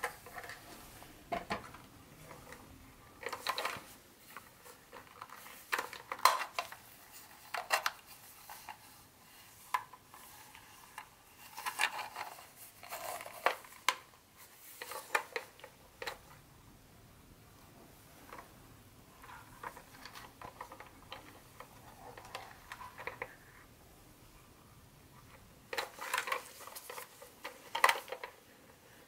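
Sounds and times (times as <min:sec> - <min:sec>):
plastic toy clicks and rattles: 0:09.6 - 0:14.1, 0:25.7 - 0:28.4.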